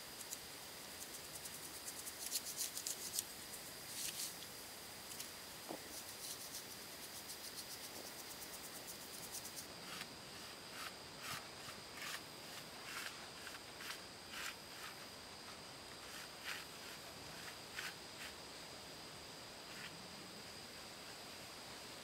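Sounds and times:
paintbrush scratching on wood: 1.0 - 3.3, 5.8 - 18.4.

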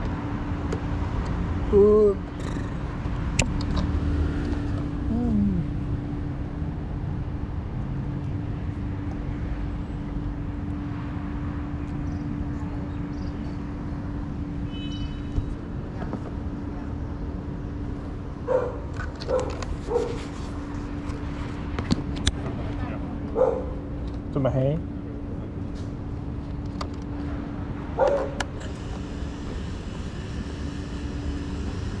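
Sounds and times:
traffic rumble: 0.0 - 32.0
dog barking: 18.5 - 20.2, 23.3 - 23.8, 28.0 - 28.4.

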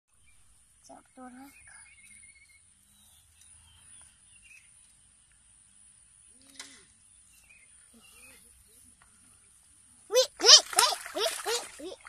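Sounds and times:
faint bird chirps: 0.1 - 5.1, 6.3 - 9.5.

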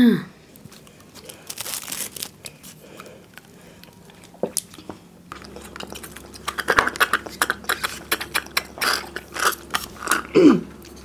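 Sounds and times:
paper cartons crinkling: 0.6 - 4.4.

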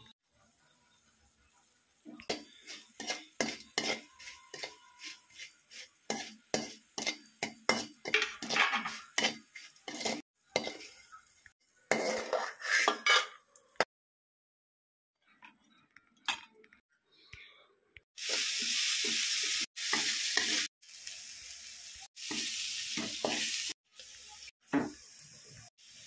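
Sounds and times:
spoon scraping metal pan: 2.2 - 11.2, 11.9 - 13.4.

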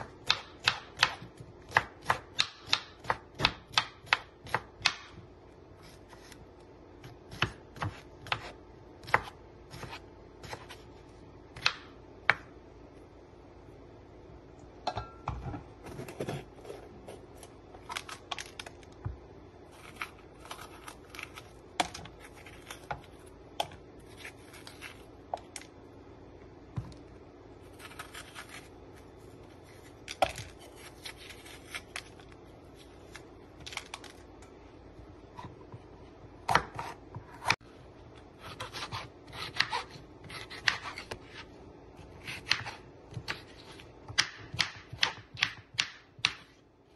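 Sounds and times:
knife slicing and scraping: 27.7 - 32.3.

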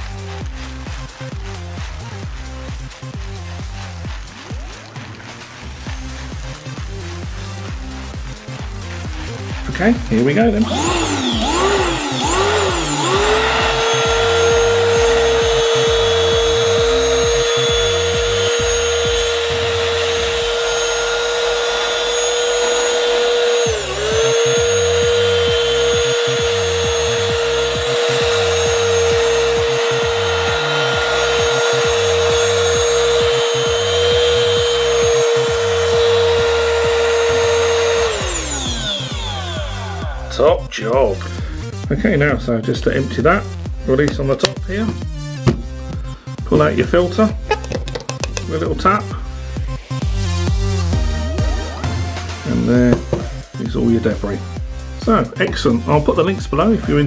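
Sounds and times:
handheld vacuum cleaner whining: 0.0 - 41.7, 47.3 - 54.8.

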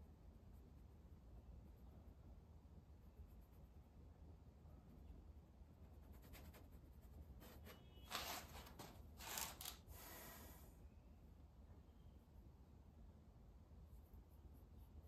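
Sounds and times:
paintbrush rubbing: 4.8 - 10.2.

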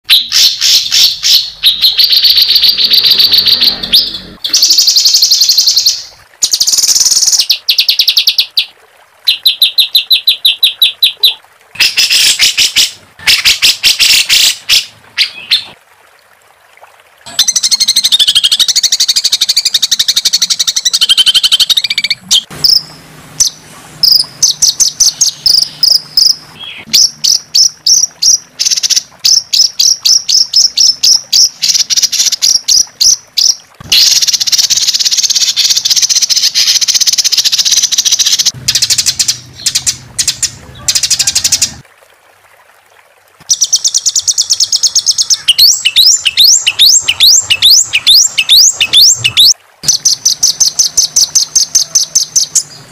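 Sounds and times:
songbird rattling trills: 0.2 - 8.4.

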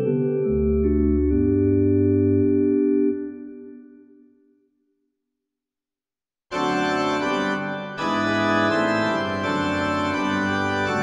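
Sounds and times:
electronic organ chords: 0.0 - 4.2, 6.5 - 11.0.

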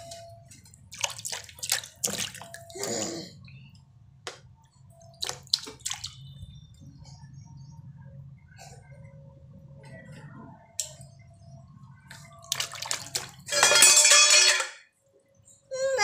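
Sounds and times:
water stirred and sloshed: 0.0 - 2.9, 4.8 - 7.0, 11.9 - 14.6.

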